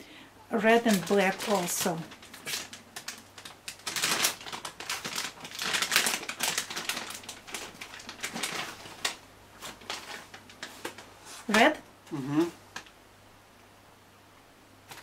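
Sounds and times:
plastic candy bag crinkling: 0:00.5 - 0:11.8.

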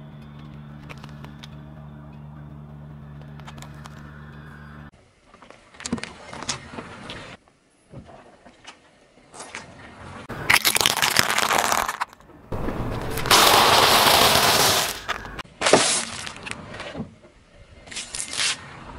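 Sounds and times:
cheese puffs crunching under tyre: 0:10.4 - 0:16.4
snack bag bursting: 0:10.5 - 0:12.1, 0:12.9 - 0:16.2.

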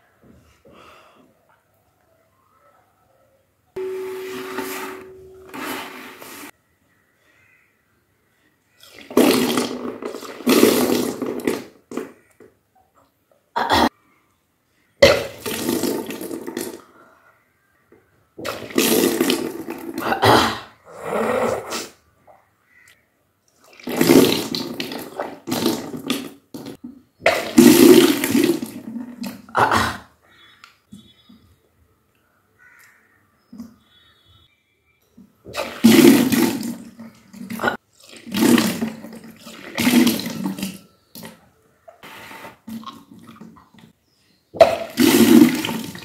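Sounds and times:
person retching: 0:08.9 - 0:12.2, 0:13.6 - 0:14.0, 0:15.0 - 0:16.9, 0:18.4 - 0:22.0, 0:23.7 - 0:30.2, 0:35.5 - 0:40.7, 0:44.6 - 0:46.0
water gushing and splashing: 0:35.5 - 0:40.8, 0:44.6 - 0:46.0.

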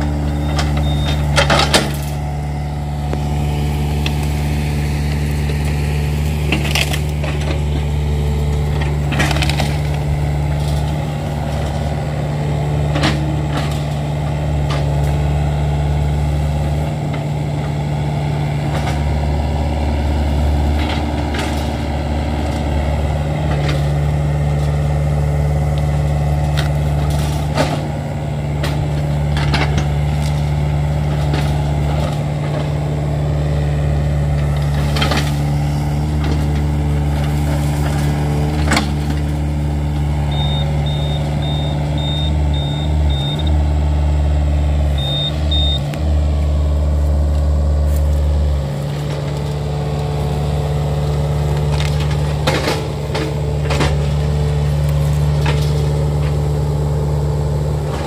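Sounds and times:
diesel excavator engine running: 0:00.0 - 0:58.0
short high beeps: 0:40.3 - 0:43.5, 0:45.0 - 0:45.8
knocks and clanks: 0:51.6 - 0:54.5.

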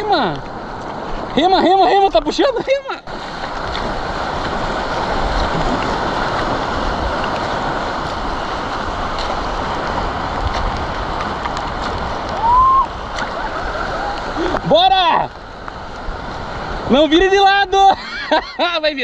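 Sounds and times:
sea surf rushing: 0:00.0 - 0:19.0
wind noise on microphone: 0:03.1 - 0:17.1.

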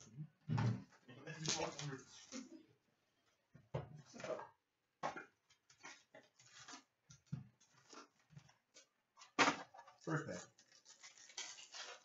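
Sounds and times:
rustling card packs: 0:01.3 - 0:02.6, 0:05.7 - 0:07.0, 0:07.6 - 0:12.0.

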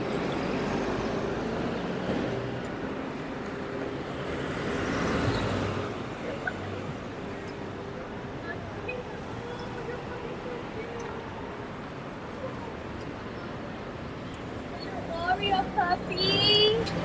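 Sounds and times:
cars driving past: 0:00.0 - 0:07.8.

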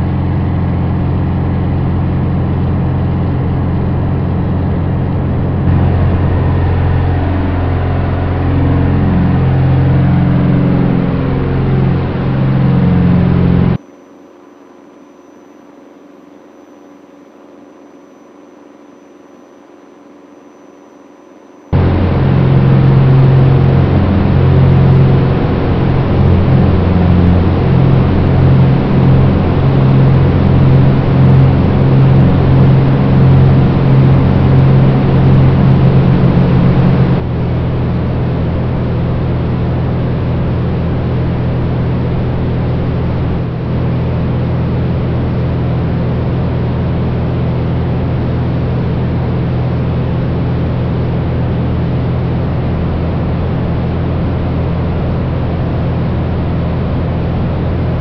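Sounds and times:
wind rush: 0:00.0 - 0:13.8, 0:21.7 - 0:47.9
plane engine and propeller: 0:00.0 - 0:58.0.

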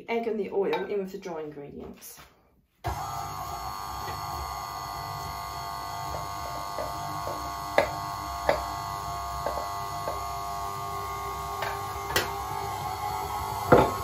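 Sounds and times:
stand mixer motor running: 0:02.9 - 0:14.0.

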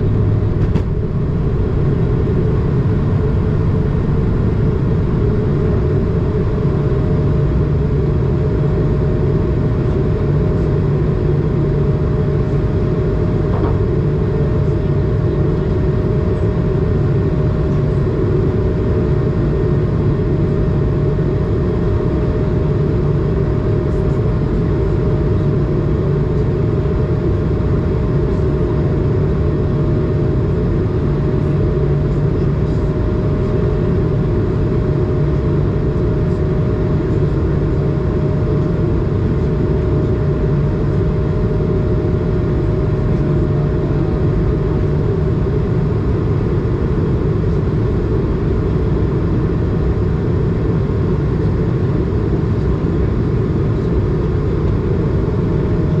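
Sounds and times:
jet engine hum in cabin: 0:00.0 - 0:56.0.

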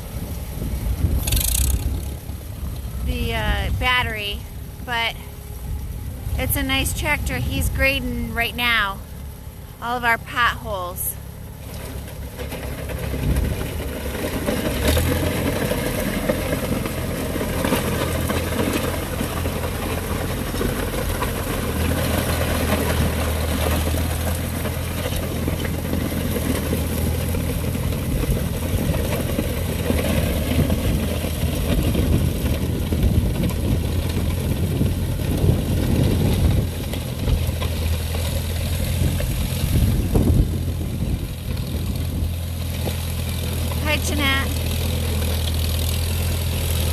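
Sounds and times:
tractor engine running: 0:00.0 - 0:46.9
blade scraping gravel: 0:01.0 - 0:02.2.

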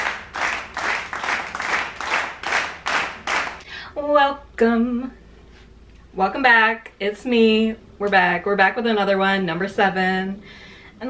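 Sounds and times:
hands clapping in rhythm: 0:00.0 - 0:03.6.

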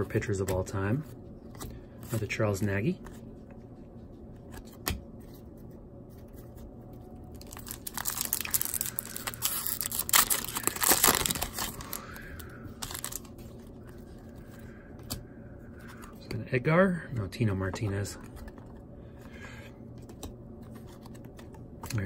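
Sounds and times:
foil wrapper crinkling and tearing: 0:07.3 - 0:13.3.

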